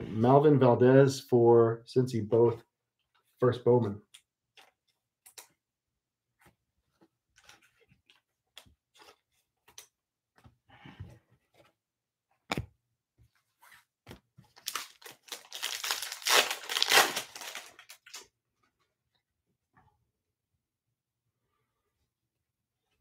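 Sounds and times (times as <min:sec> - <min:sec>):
foil wrapper crinkling and tearing: 0:14.6 - 0:18.3.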